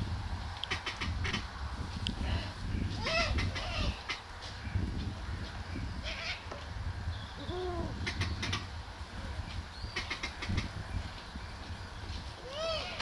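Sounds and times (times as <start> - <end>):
steady low rumble: 0.0 - 13.0
animal calls rising and falling: 12.4 - 13.0.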